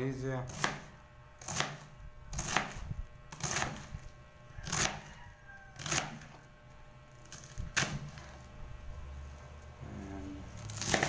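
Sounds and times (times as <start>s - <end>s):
knife chopping cabbage on board: 0.5s - 4.0s, 4.6s - 5.1s, 5.8s - 6.3s, 10.7s - 11.0s.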